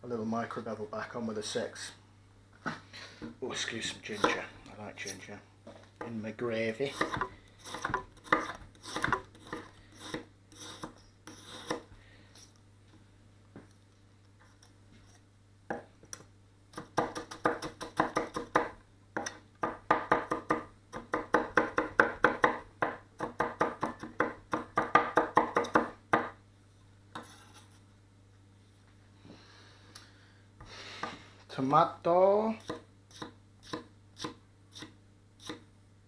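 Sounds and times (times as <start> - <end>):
knife chopping on wooden board: 7.0 - 10.2, 16.8 - 26.4.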